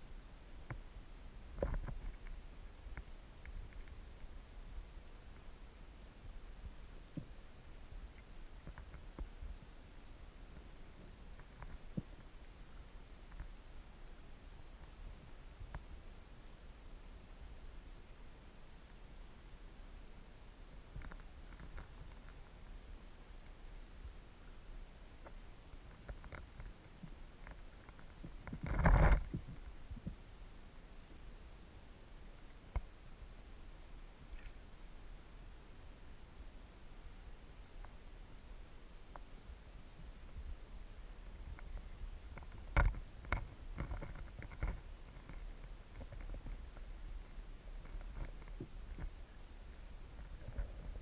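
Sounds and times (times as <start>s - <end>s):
steady low underwater noise: 0.0s - 51.0s
faint clicks and ticks: 0.6s - 9.7s, 10.4s - 16.1s, 20.7s - 30.2s, 32.3s - 33.2s, 33.8s - 35.2s, 37.0s - 38.1s, 39.0s - 51.0s
sharp clicks and knocks: 41.5s - 46.6s.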